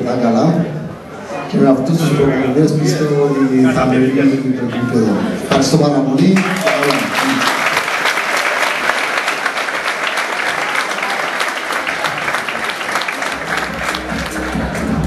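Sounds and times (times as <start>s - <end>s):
audience clapping: 6.3s - 15.0s.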